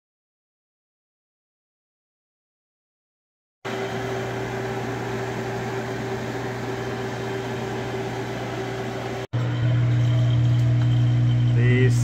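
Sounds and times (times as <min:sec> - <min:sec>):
microwave oven humming: 0:03.7 - 0:12.0.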